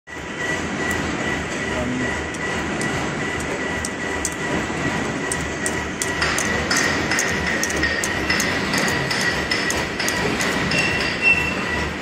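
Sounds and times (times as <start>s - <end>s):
nail machine clatter: 5.3s - 11.2s.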